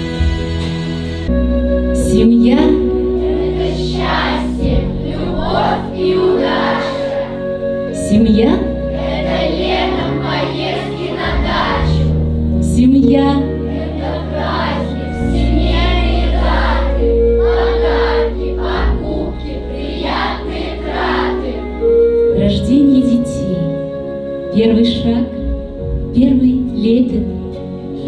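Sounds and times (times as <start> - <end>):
choir singing over chords: 2.4 - 22.3.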